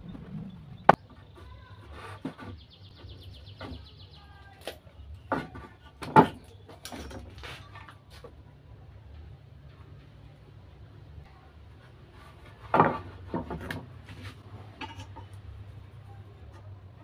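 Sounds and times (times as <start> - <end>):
wooden boards knocking and clattering: 5.2 - 7.9, 12.5 - 14.2.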